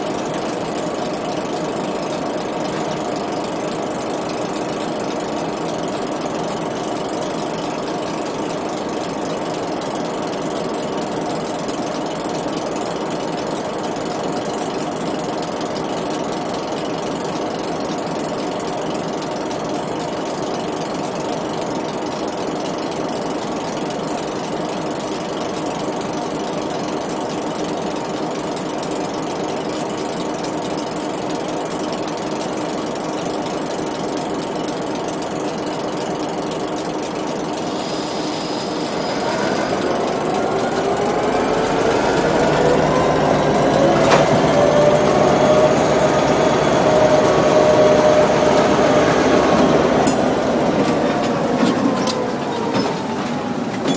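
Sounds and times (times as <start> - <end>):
diesel locomotives running: 0.0 - 53.9.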